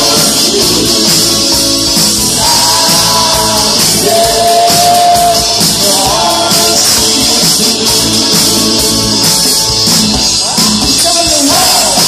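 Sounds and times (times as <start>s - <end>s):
person singing: 0.0s - 9.4s
live rock band playing: 0.0s - 12.0s.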